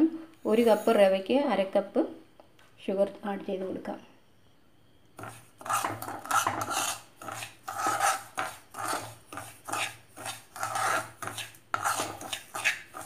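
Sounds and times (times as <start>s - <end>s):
spoon scraping in a pan: 0.4s - 1.2s, 5.2s - 13.0s.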